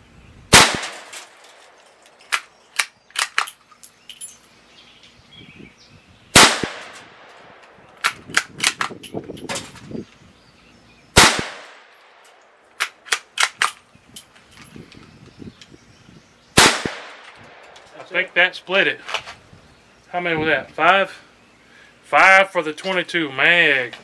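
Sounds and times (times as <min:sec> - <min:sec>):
rifle shots cracking: 0:00.5 - 0:01.4, 0:06.4 - 0:08.9, 0:11.2 - 0:12.0, 0:16.6 - 0:17.8.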